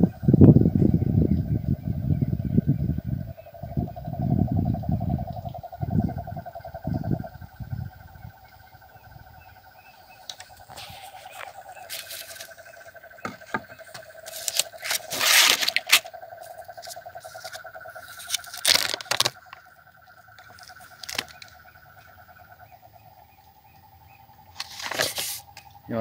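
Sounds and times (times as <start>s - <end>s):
bees buzzing: 10.0s - 21.6s
rustling and scraping handling: 10.4s - 12.6s, 13.2s - 19.6s, 24.6s - 25.5s.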